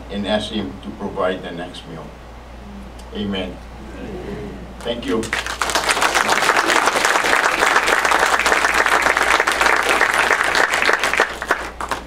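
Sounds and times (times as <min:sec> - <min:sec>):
crowd clapping: 0:04.8 - 0:12.0.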